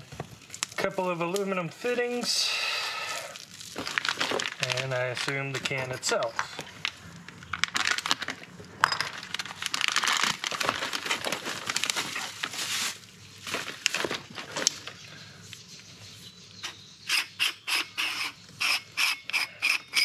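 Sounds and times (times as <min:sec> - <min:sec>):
plastic bags crinkling: 0:00.0 - 0:15.0.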